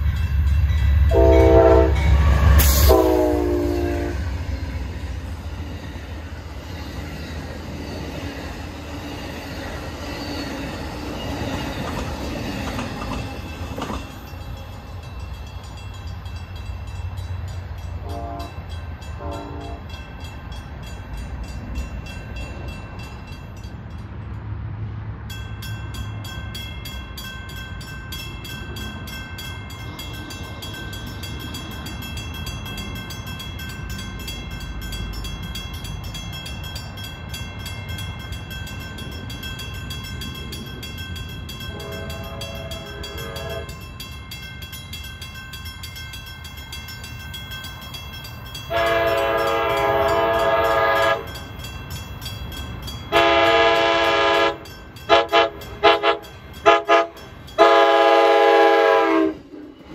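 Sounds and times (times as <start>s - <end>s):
train rumbling: 0.0s - 59.9s
locomotive horn blasts: 1.1s - 4.3s, 18.0s - 18.6s, 19.2s - 20.0s, 41.7s - 43.7s, 48.7s - 51.4s, 53.1s - 59.4s.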